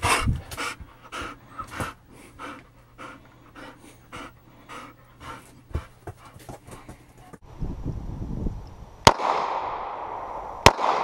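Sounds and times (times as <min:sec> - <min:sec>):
dog panting: 0:00.0 - 0:07.4.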